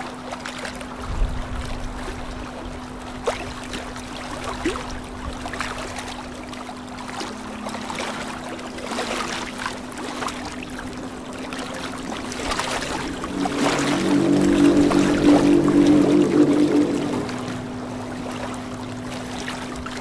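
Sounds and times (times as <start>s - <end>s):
steady low hum: 3.9s - 20.0s
air bubbling in water: 10.6s - 18.0s.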